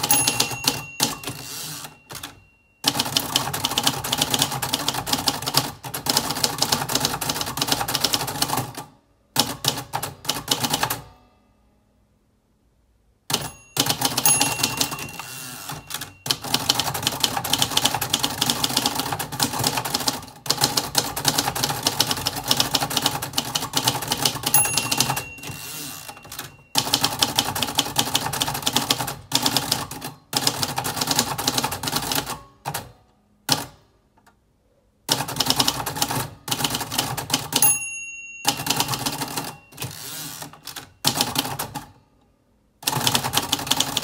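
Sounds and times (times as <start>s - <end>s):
typewriter bell ringing: 0.0s - 5.7s, 13.3s - 20.4s, 21.5s - 29.8s, 37.4s - 41.8s
typewriter typing: 0.0s - 11.0s, 13.3s - 32.9s, 35.1s - 37.7s, 38.4s - 42.0s, 42.8s - 44.0s.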